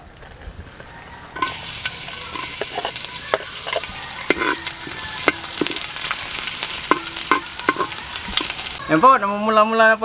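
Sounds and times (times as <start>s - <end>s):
spatula scraping and tapping pan: 1.4s - 8.8s
garlic sizzling in oil: 1.4s - 8.9s.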